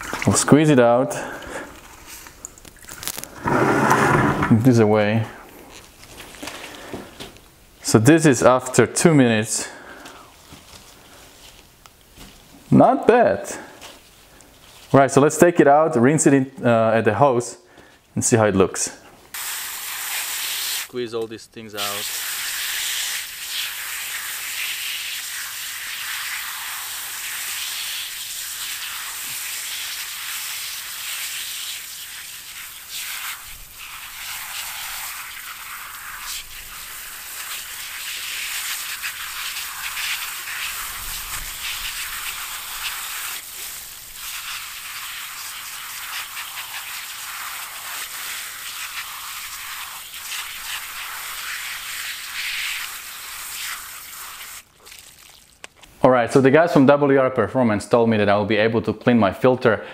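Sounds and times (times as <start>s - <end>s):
hose spray hissing: 3.1s - 4.5s, 19.3s - 55.0s.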